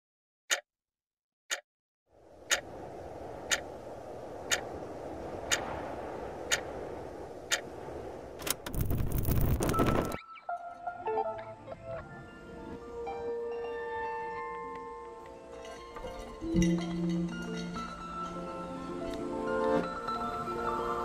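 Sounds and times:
clock ticking: 2.5s - 2.7s, 3.5s - 3.7s
music with bell-like mallet notes: 12.0s - 21.0s.

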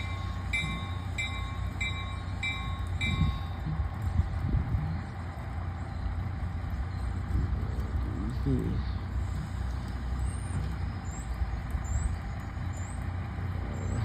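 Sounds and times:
locomotive bell ringing: 0.0s - 4.2s
diesel locomotive idling: 0.0s - 14.0s.

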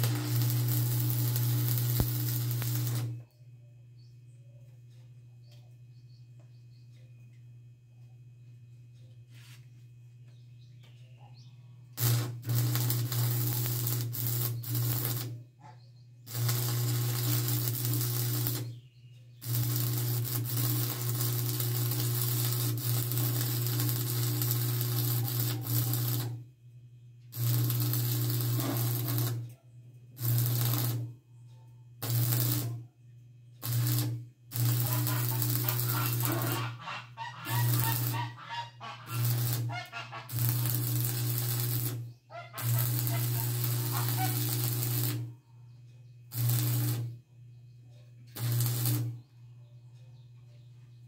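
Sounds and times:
arc welding crackle: 0.0s - 3.2s, 12.0s - 15.4s, 16.3s - 18.8s, 19.4s - 26.4s, 27.3s - 29.6s, 30.2s - 31.1s, 32.0s - 32.8s, 33.6s - 45.3s, 46.3s - 47.2s, 48.3s - 49.2s
low electrical hum: 0.0s - 51.0s.

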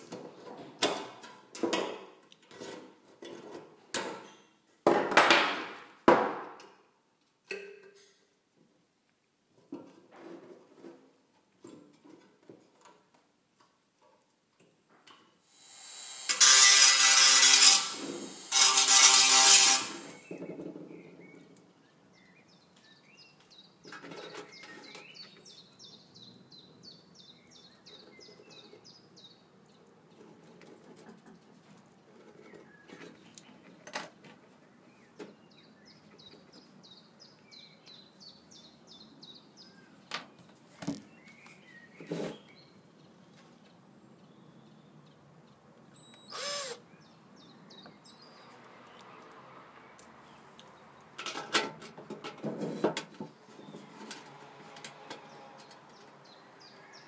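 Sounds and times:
drill drilling through tin: 15.5s - 20.3s, 46.2s - 46.8s
bird chirping: 20.0s - 29.9s, 34.8s - 49.2s.

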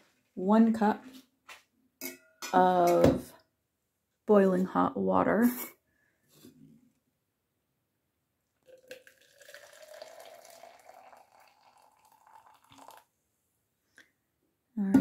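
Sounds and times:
water pouring into a plastic cup: 8.6s - 13.1s.

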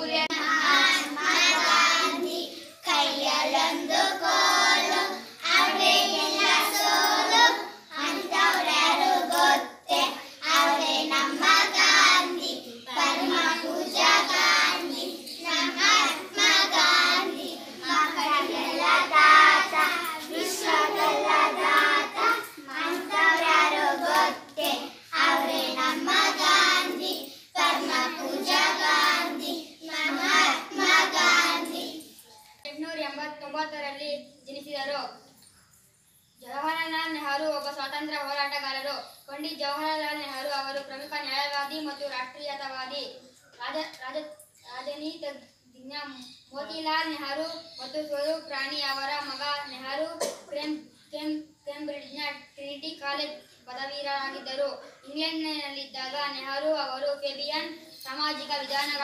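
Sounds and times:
children singing in unison: 0.0s - 32.2s.

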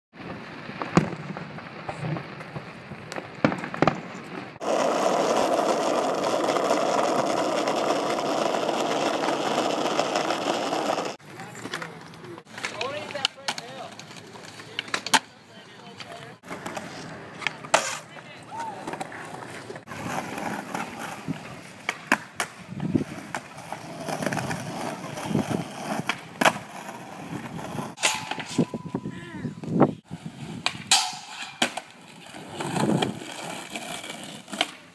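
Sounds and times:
skateboard wheels rolling on pavement: 0.1s - 34.9s
fireworks bangs: 0.2s - 4.7s
skateboard clacking on ground: 4.6s - 28.8s, 30.6s - 34.9s.

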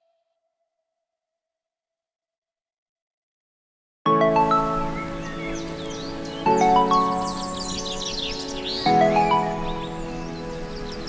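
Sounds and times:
chiming instrumental music: 4.1s - 11.0s.

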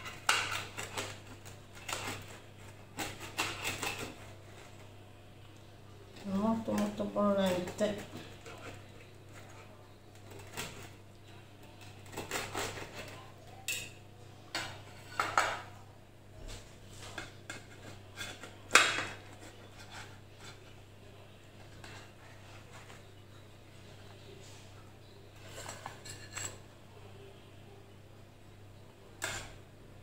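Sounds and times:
knife scraping metal tray: 0.0s - 4.4s.

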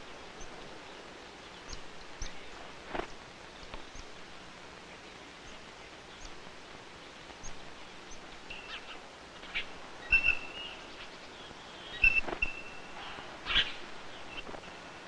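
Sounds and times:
steady hiss: 0.0s - 15.0s
chickadee calling: 4.8s - 14.7s.

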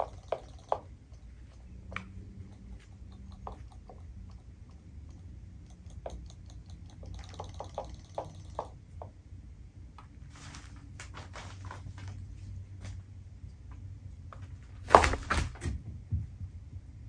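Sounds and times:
small plastic ticks: 0.0s - 9.1s
low steady hum: 0.0s - 17.0s.

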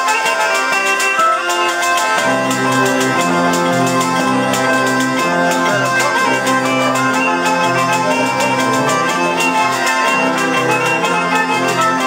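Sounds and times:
bagpipes and shawm folk melody: 0.0s - 12.0s
jingled frame drum beat: 0.0s - 12.0s.

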